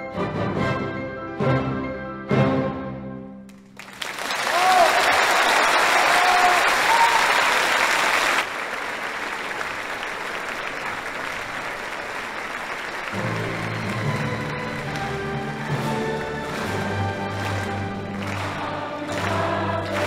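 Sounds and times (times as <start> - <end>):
music: 0.0 - 3.8, 13.1 - 20.0
crowd applauding: 3.5 - 20.0.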